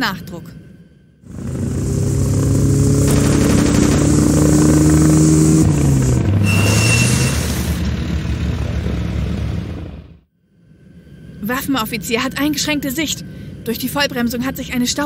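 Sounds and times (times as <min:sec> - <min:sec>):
vehicle engine drone: 0:01.2 - 0:14.5
machine gun firing: 0:02.9 - 0:05.2
brakes squealing: 0:04.4 - 0:10.1.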